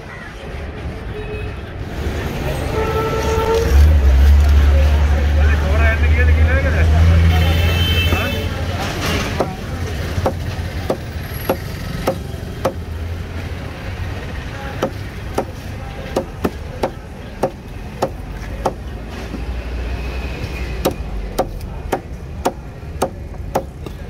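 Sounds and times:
knife chopping on wooden table: 10.2 - 12.8.

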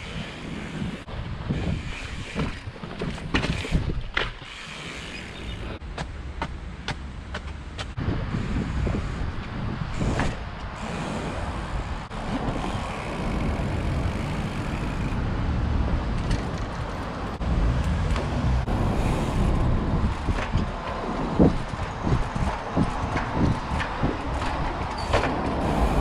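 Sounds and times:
wind rumble on microphone: 0.0 - 4.2, 7.9 - 26.0
bike knocks and clatters: 1.5 - 8.0, 19.4 - 26.0.

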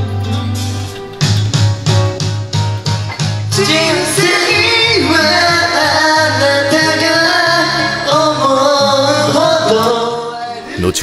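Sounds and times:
backing track music: 0.0 - 11.0
two men singing: 3.5 - 10.7.

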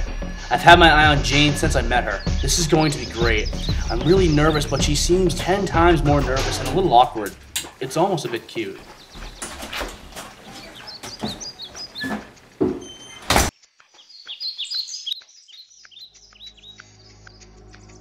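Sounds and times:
birds chirping: 0.0 - 18.0
scuffs and knocks: 7.4 - 13.5.

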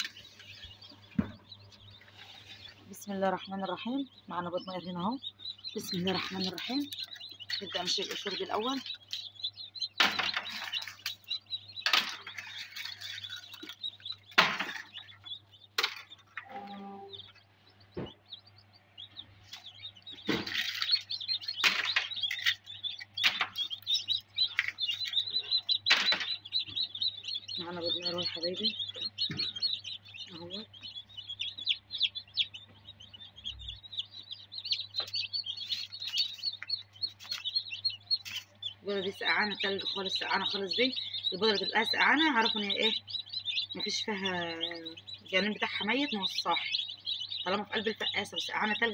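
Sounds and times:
chicks peeping: 0.0 - 48.9
eggshells crackling and crunching: 5.2 - 16.4, 19.5 - 27.6, 33.2 - 42.3.

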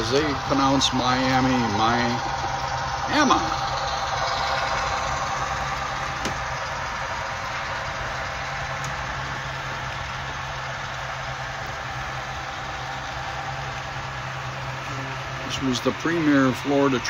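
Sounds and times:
model train rolling past: 0.0 - 17.0.

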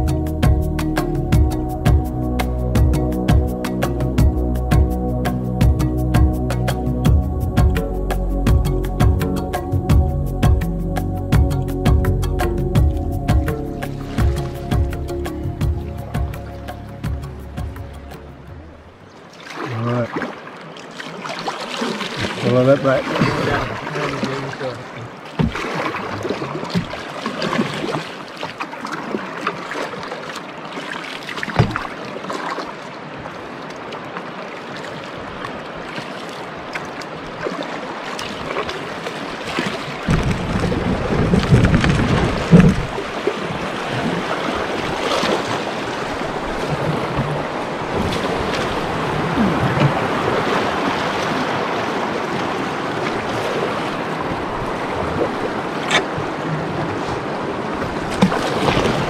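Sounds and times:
paddle splashes: 12.8 - 59.0
rush of rapids: 17.6 - 59.0
sharp knocks: 25.4 - 25.6, 31.5 - 31.9
wind buffeting microphone: 39.9 - 59.0.

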